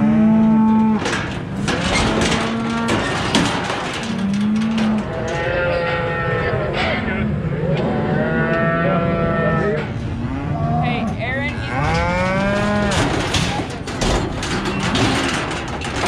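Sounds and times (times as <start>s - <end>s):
cattle mooing: 0.0s - 3.1s, 4.0s - 13.2s.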